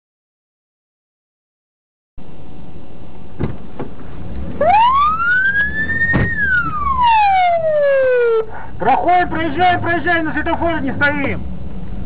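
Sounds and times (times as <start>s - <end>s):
car driving rumble: 3.2s - 12.0s
emergency vehicle siren: 4.5s - 9.4s.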